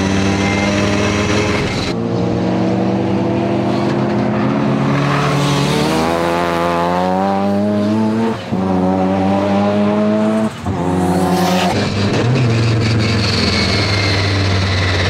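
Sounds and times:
rotary engine running high pitch: 0:11.6 - 0:15.0.

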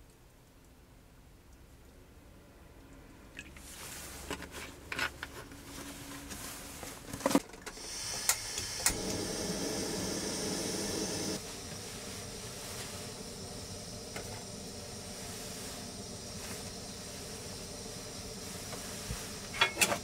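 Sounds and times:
gas burner hissing: 0:07.7 - 0:20.0
stove igniter clicks: 0:08.1 - 0:09.2.

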